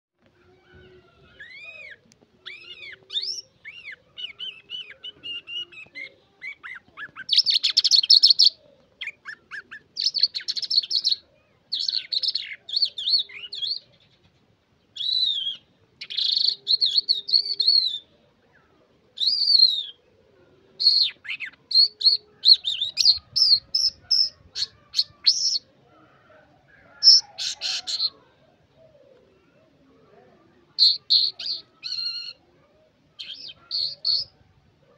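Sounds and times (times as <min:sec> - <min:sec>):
lark singing: 0:00.7 - 0:14.0, 0:15.0 - 0:18.2, 0:19.2 - 0:20.1, 0:20.8 - 0:25.7, 0:26.7 - 0:28.3, 0:30.8 - 0:32.4, 0:33.2 - 0:34.4.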